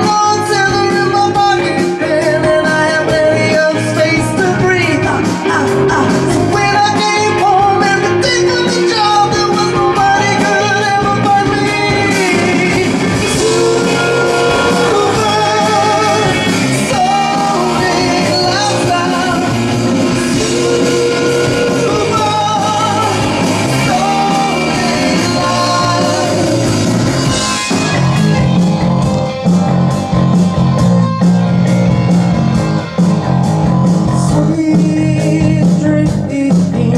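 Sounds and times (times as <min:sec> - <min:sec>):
man singing: 0:00.0 - 0:26.7, 0:34.1 - 0:36.9
electric bass: 0:00.0 - 0:36.9
electric guitar: 0:00.0 - 0:36.9
keyboard: 0:00.0 - 0:36.9.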